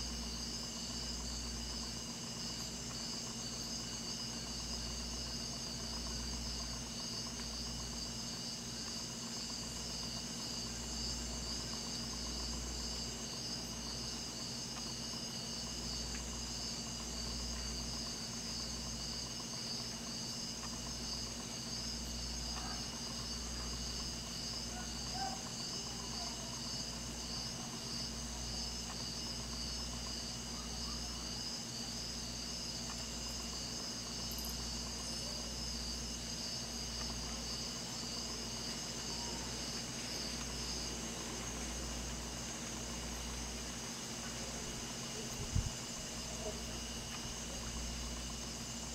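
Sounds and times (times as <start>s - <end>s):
insects trilling: 0.0s - 48.9s.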